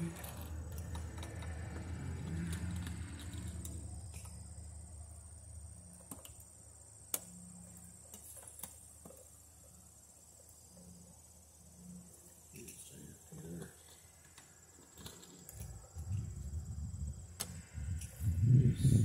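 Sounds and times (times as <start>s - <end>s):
insects chirring: 0.0s - 19.0s
low rumble: 16.0s - 19.0s.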